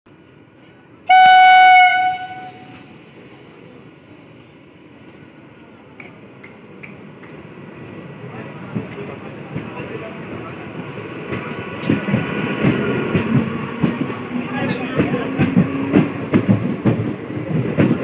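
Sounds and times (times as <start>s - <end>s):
train rumbling: 0.1s - 18.0s
train horn blast: 1.1s - 2.8s.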